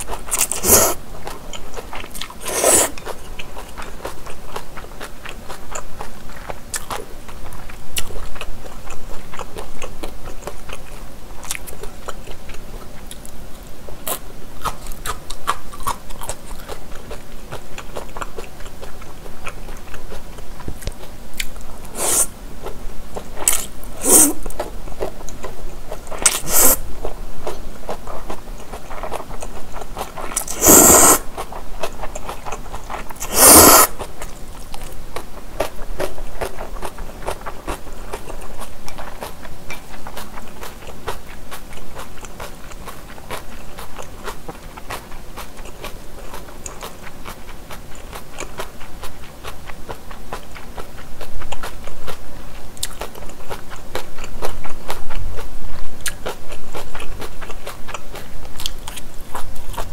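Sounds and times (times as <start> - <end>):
wet chewing: 0.0 - 59.9
noodles slurping: 0.3 - 1.0, 2.4 - 3.2, 21.9 - 22.3, 23.4 - 24.5, 26.2 - 26.8, 30.1 - 31.5, 33.2 - 34.1
mouth clicks: 21.4 - 22.3, 26.2 - 26.8, 30.4 - 31.4, 33.2 - 34.0.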